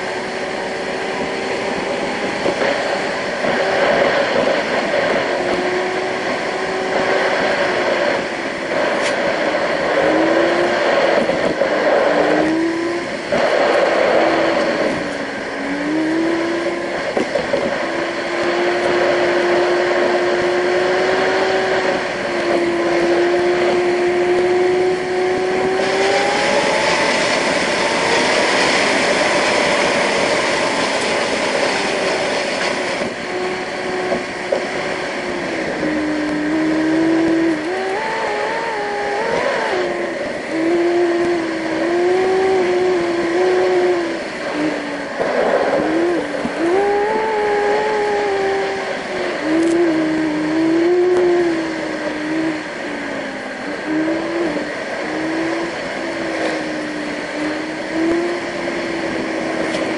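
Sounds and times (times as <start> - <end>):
car engine: 0.0 - 59.9.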